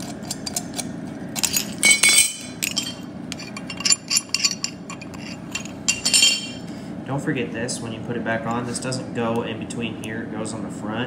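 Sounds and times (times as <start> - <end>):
metal parts clinking on concrete: 0.0 - 6.7.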